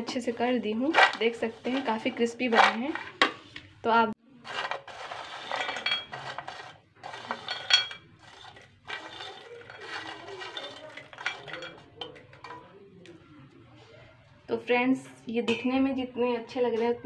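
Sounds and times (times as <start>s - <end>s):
fried pasta rattling in steel bowl: 4.5s - 12.7s.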